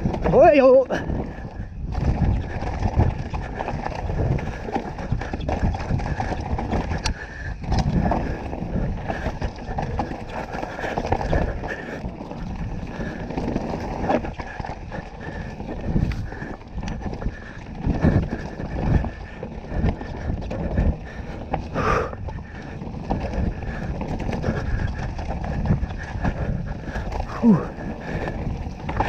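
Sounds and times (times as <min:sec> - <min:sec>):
bike knocking and rattling: 0:00.0 - 0:29.0
tyre noise on dirt and rocks: 0:00.0 - 0:29.0.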